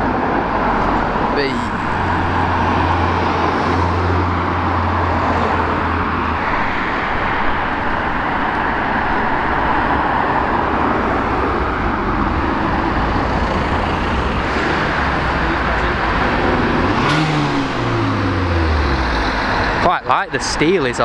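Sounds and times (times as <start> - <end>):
cars driving past: 0.0 - 21.0.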